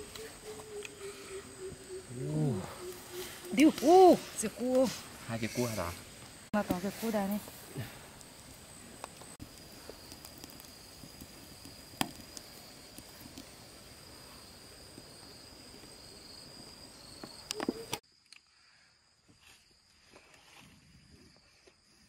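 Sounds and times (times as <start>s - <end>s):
high-pitched insect drone: 0.0s - 6.5s.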